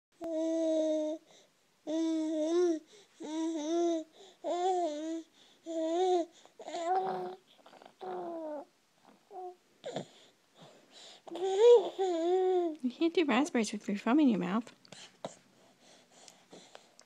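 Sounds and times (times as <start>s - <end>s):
baby cooing: 1.9s - 12.8s.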